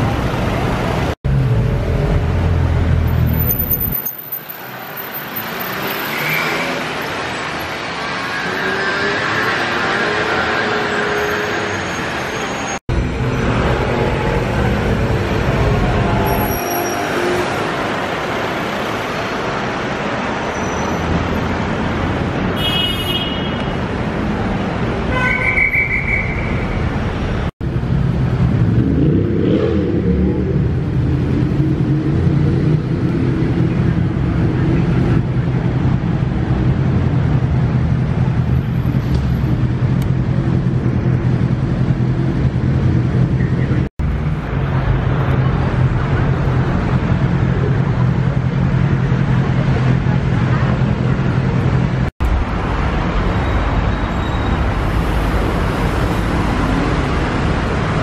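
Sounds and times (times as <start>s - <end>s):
city street traffic: 0.0s - 58.0s.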